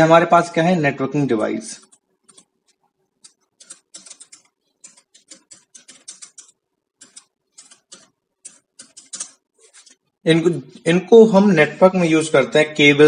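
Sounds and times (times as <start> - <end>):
computer keyboard typing: 1.8 - 10.0.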